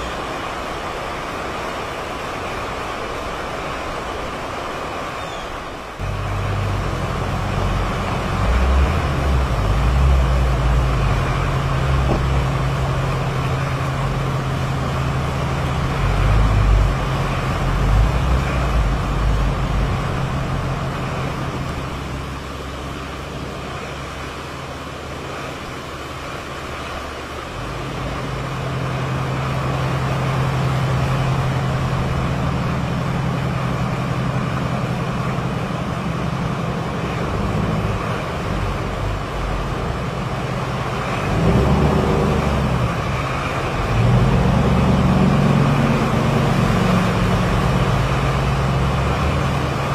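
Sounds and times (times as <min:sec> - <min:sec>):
hurricane wind buffeting microphone: 0:00.0 - 0:49.9.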